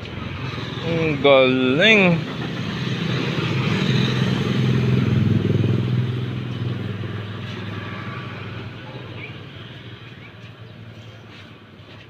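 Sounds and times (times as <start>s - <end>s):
motorcycle engine passing by: 1.9s - 11.0s.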